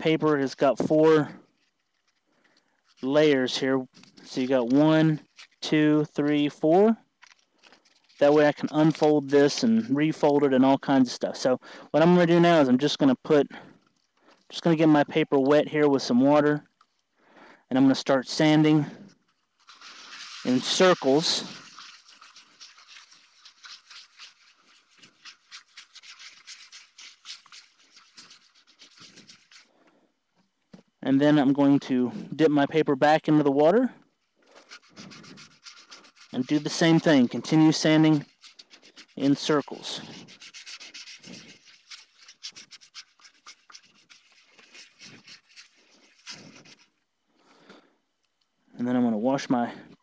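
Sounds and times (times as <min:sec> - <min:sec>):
wet sandpaper scratching: 0:02.8 - 0:13.2, 0:17.9 - 0:29.8, 0:34.3 - 0:47.0.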